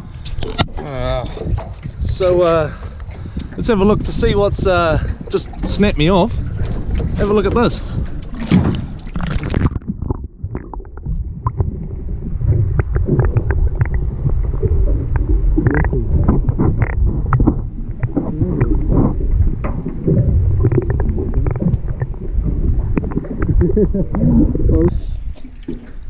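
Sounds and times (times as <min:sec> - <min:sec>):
microphone splashing into water: 0:00.0 - 0:26.0
underwater rumble of moving water: 0:00.0 - 0:26.0
small underwater clicks and knocks: 0:00.2 - 0:02.2, 0:05.3 - 0:11.7, 0:12.7 - 0:14.1, 0:15.1 - 0:26.0.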